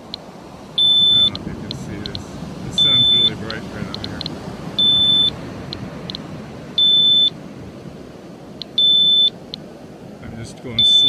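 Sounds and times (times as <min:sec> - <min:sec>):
geiger counter alarm beeps: 0:00.8 - 0:01.4, 0:02.0 - 0:03.6, 0:04.8 - 0:05.8, 0:06.8 - 0:07.4, 0:08.7 - 0:09.4, 0:10.8 - 0:11.0
geiger counter ticks: 0:00.8 - 0:02.2, 0:02.8 - 0:06.2.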